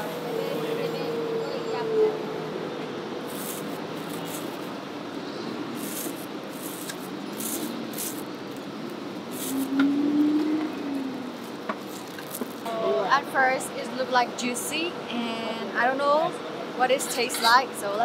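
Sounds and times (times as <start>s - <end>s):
street noise: 0.0s - 18.0s.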